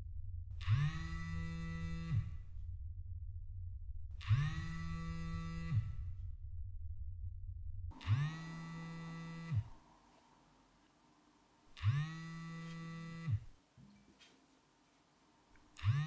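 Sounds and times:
phone vibrating on a table: 0.6 - 2.7, 4.1 - 6.4, 7.9 - 9.8, 11.8 - 13.6, 15.8 - 16.0.

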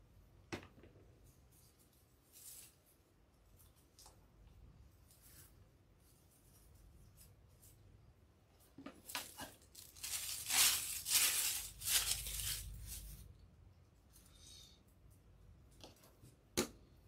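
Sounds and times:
plastic wrapping crinkling: 9.0 - 13.2.

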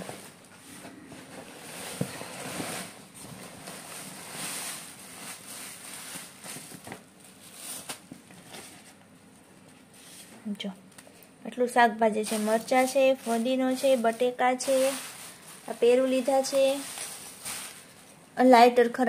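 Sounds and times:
plastic bags rustling and crinkling: 0.0 - 10.6, 11.6 - 18.8.

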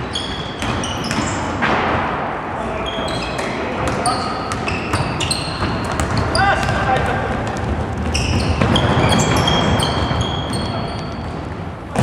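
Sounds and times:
sneakers squeaking on floor: 0.0 - 1.6, 2.8 - 12.0
players' voices: 2.4 - 8.0
ball bouncing: 3.4 - 12.0.

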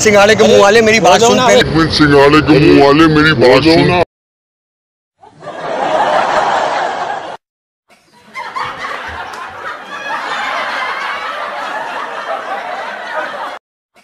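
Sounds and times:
people laughing: 5.2 - 13.6.

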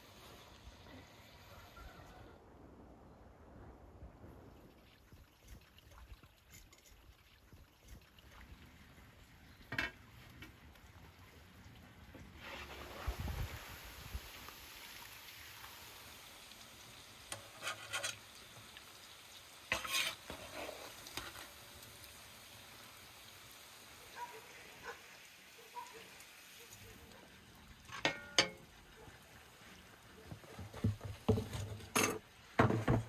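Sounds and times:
hot oil sizzling in pan: 12.3 - 31.8
metal utensil clinking on pan: 27.9 - 28.6, 31.9 - 32.2.

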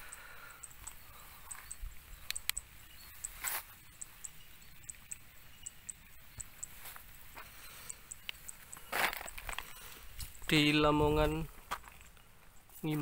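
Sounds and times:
small animal chirping: 0.0 - 6.9, 7.5 - 10.5.

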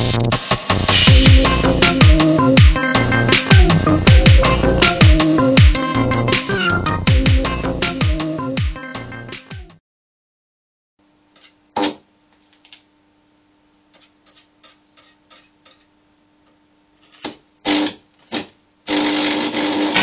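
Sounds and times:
welder transformer humming: 11.0 - 20.0
welding arc crackling: 17.1 - 20.0.

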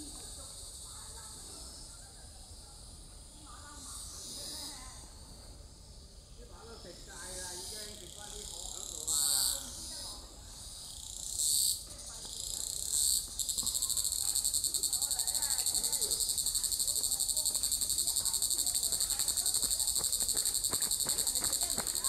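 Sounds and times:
insect buzzing song: 0.0 - 22.0
faint ticks and rustles: 11.8 - 22.0.

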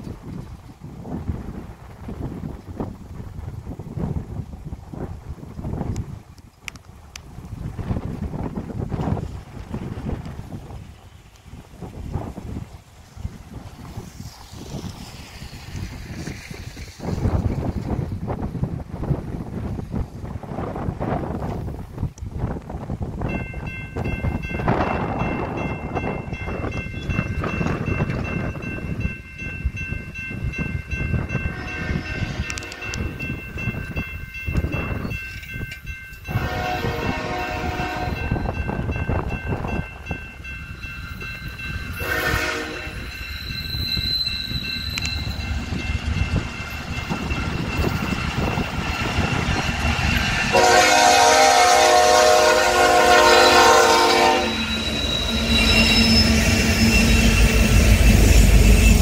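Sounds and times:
crossing bell ringing: 23.2 - 59.0
train air horn blasts: 31.4 - 33.2, 36.3 - 38.4, 42.0 - 43.1, 50.5 - 58.9.

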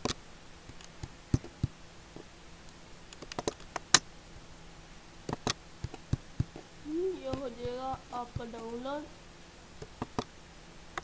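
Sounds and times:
computer mouse clicks: 2.7 - 4.0, 5.3 - 6.6, 9.8 - 10.3.

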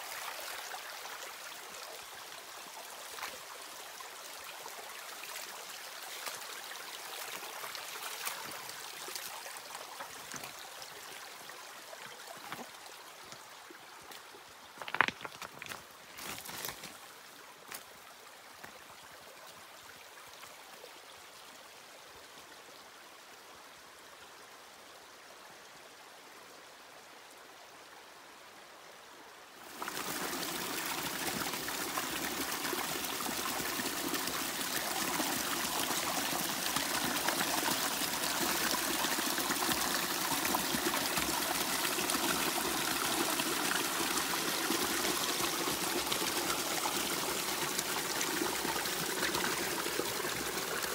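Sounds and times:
river water rushing: 29.6 - 50.9.

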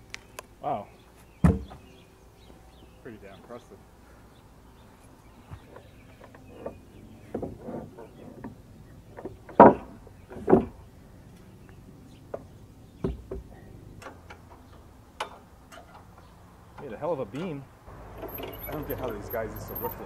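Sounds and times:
loud wooden thumps: 1.4 - 1.8, 6.6 - 10.8, 12.3 - 13.5
wooden beam scraping on wood: 5.0 - 10.8.

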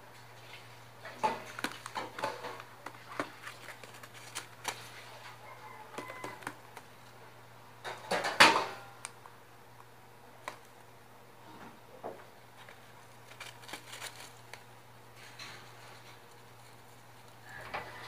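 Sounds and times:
newspaper rustling: 1.1 - 6.9, 12.4 - 17.4.

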